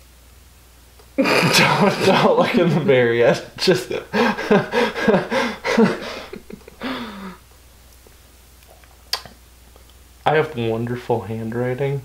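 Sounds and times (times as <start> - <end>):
person laughing: 1.2 - 7.4.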